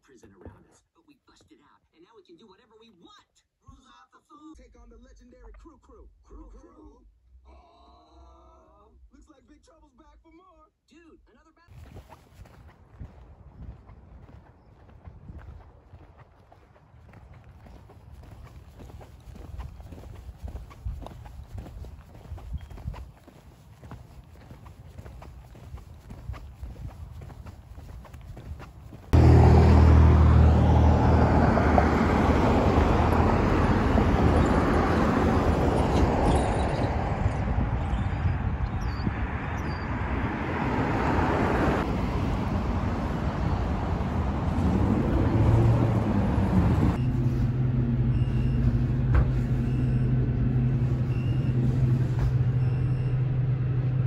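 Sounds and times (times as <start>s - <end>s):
footsteps on pavement: 11.7s - 29.8s
road traffic passing: 13.0s - 54.0s.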